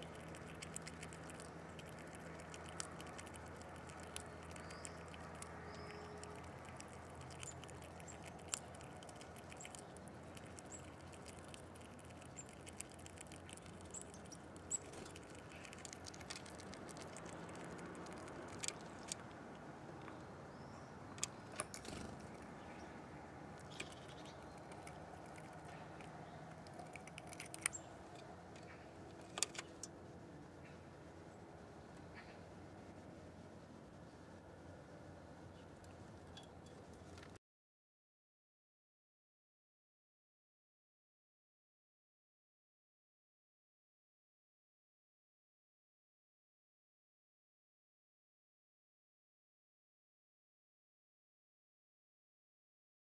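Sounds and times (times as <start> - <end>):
animals tapping while feeding: 0.0 - 20.3, 21.1 - 30.0
faint high chirps: 4.1 - 6.4.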